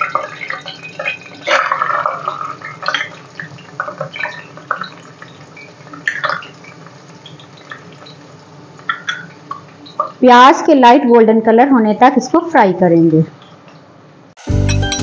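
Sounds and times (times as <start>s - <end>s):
onion sizzling in hot oil: 0.0s - 10.6s.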